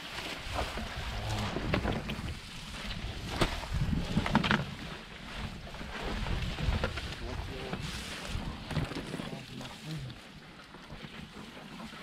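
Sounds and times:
grass and leaves rustling: 0:00.0 - 0:12.0
wind buffeting microphone: 0:00.4 - 0:09.1.

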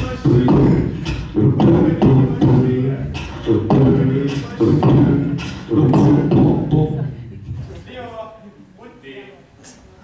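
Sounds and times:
hummed vocal bass line: 0:00.0 - 0:07.7.

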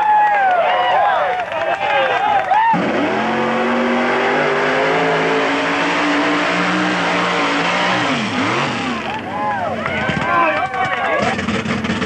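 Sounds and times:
truck engine revving hard: 0:02.6 - 0:09.4, 0:11.1 - 0:12.0.

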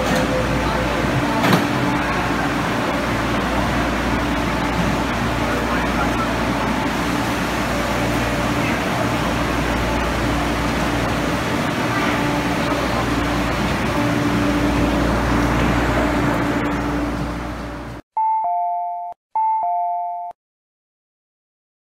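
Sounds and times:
electric train rumbling: 0:00.0 - 0:18.0.

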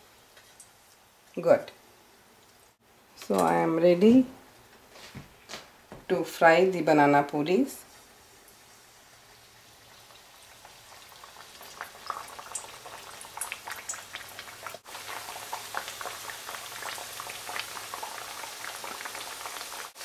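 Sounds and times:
dough sizzling in hot oil: 0:07.9 - 0:20.0.

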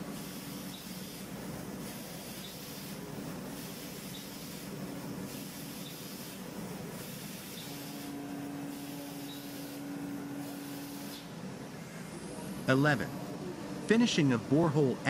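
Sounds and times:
hiss of coolant spray: 0:00.0 - 0:11.3
steady machine hum: 0:00.0 - 0:15.0.

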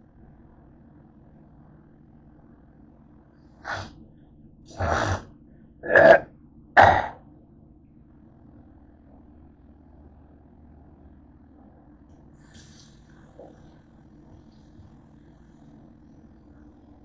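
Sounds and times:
faint low hum: 0:00.0 - 0:17.0
person coughing: 0:05.8 - 0:06.2, 0:06.8 - 0:07.2.

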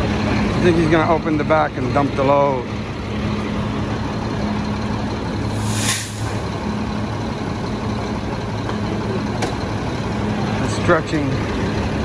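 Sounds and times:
diesel trucks idling: 0:00.0 - 0:12.0
air brake hiss: 0:05.5 - 0:06.4.

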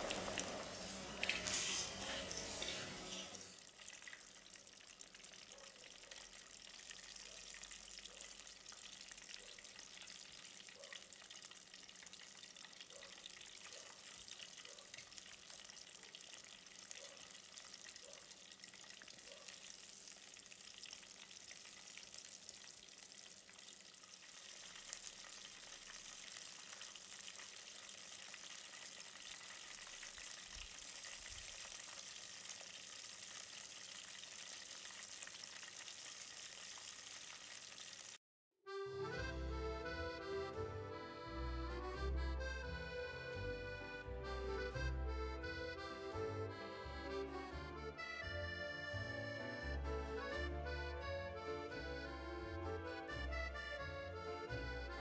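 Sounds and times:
chicken deep-frying in hot oil: 0:00.0 - 0:38.2.

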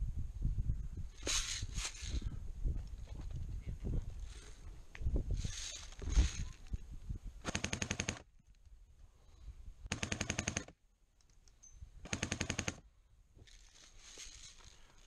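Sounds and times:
airsoft gun full-auto bursts: 0:07.4 - 0:08.3, 0:09.9 - 0:10.8, 0:12.0 - 0:12.8.

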